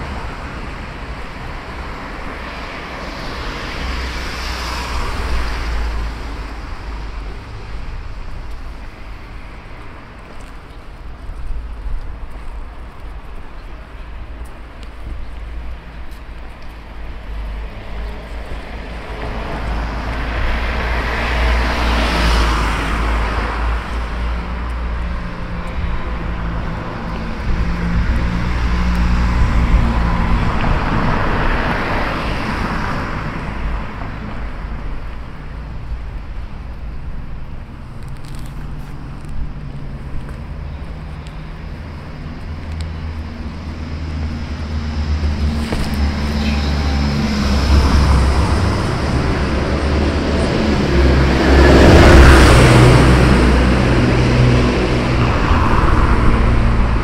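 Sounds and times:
vehicles passing: 0.0 - 57.0.

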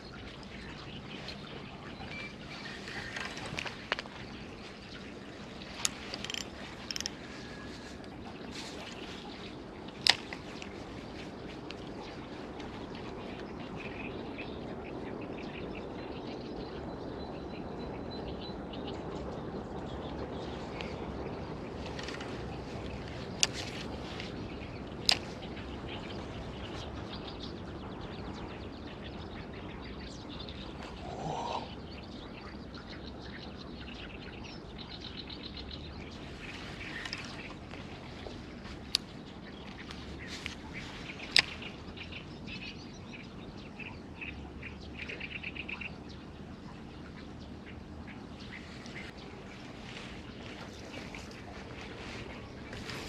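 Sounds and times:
birds chirping and trilling: 0.0 - 53.0
sharp clicks: 5.8 - 7.2.

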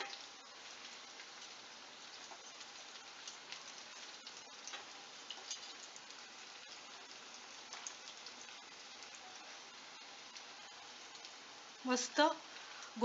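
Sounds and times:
patties sizzling in hot oil: 0.0 - 13.0.

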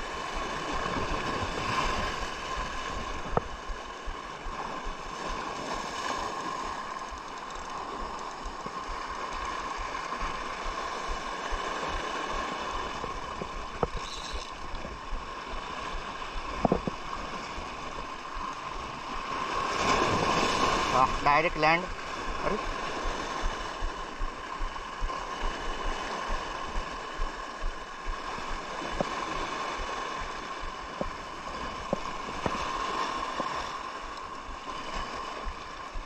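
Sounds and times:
seawater rushing on rocky shore: 0.0 - 36.0
sharp clicks: 7.0 - 8.8.

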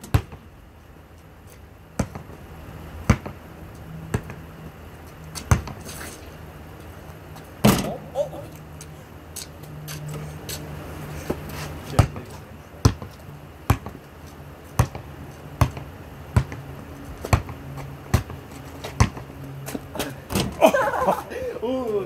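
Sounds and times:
basketball bouncing: 0.0 - 0.4, 2.0 - 2.3, 3.0 - 3.4, 4.1 - 4.4, 5.4 - 5.8, 12.0 - 12.2, 12.8 - 13.1, 13.7 - 14.0, 14.8 - 16.6, 17.2 - 19.3.

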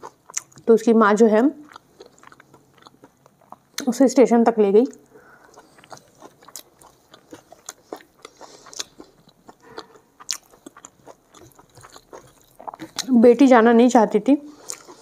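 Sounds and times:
person chewing food: 0.0 - 0.7, 1.6 - 3.9, 4.9 - 13.2, 14.5 - 15.0.

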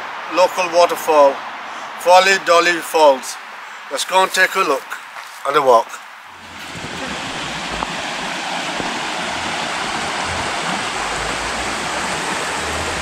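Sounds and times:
stream rushing over rocks: 6.3 - 13.0.

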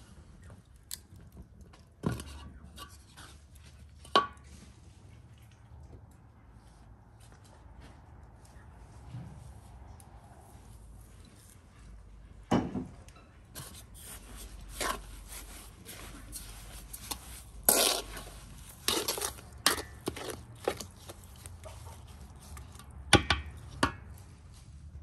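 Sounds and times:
wooden spoon scraping metal pan: 13.6 - 22.8.

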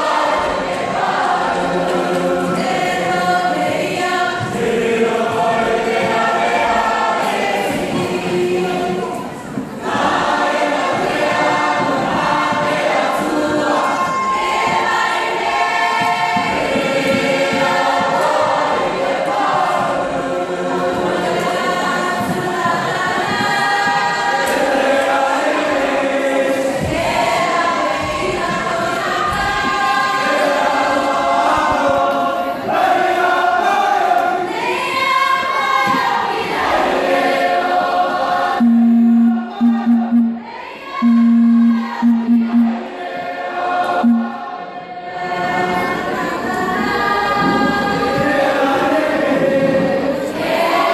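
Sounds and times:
choir singing: 0.0 - 50.9
steady low tone: 38.6 - 42.8, 44.0 - 44.4.

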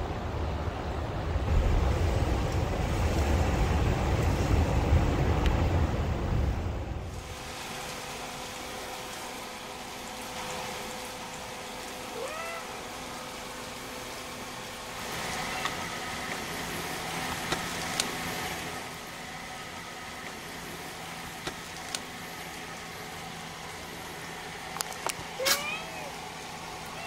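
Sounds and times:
kitten mewing: 12.1 - 12.9, 25.4 - 26.2.

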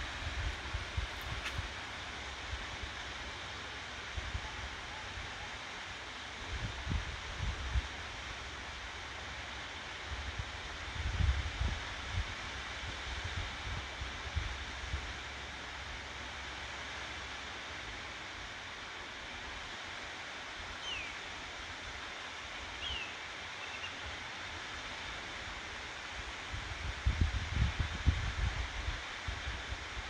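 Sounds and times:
wind gusting on microphone: 0.0 - 1.8, 26.5 - 30.0
waterfall rushing hiss: 0.0 - 30.0.

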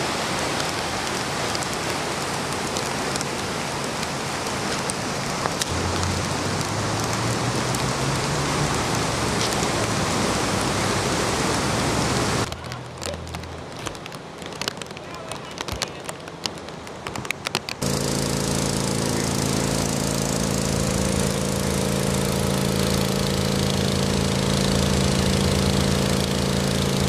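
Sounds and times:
heavy rush of rain and floodwater: 0.0 - 27.0
raindrops ticking: 0.2 - 10.8, 12.4 - 27.0
low hum: 17.8 - 27.0.

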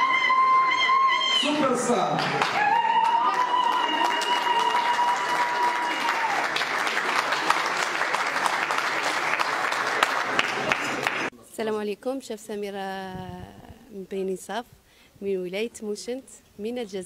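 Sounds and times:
crowd applauding: 0.0 - 11.3.

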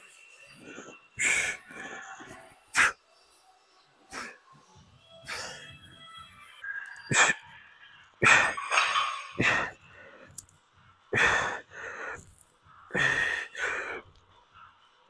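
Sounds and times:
man breathing hard: 0.6 - 3.0, 5.2 - 5.8, 11.1 - 14.2.

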